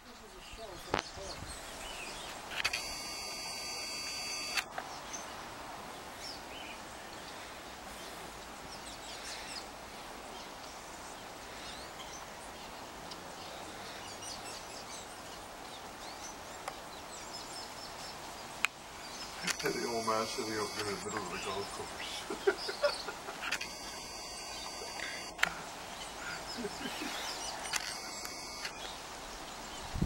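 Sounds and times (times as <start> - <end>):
outdoor background hiss: 0.0 - 30.0
brief buzz: 2.6 - 4.7, 19.4 - 21.8, 23.6 - 25.6, 27.4 - 28.8
high bird chirps: 19.1 - 29.0.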